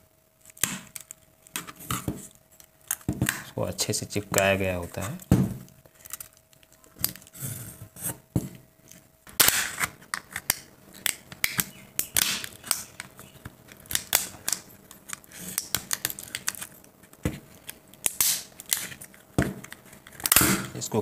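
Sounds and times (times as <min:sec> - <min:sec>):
plastic case cracking and clicking: 0:09.3 - 0:20.8.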